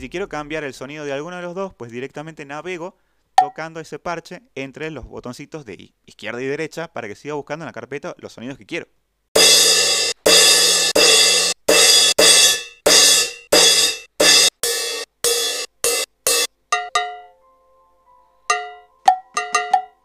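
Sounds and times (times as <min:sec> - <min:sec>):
cymbal samples: 0:09.4 - 0:17.2.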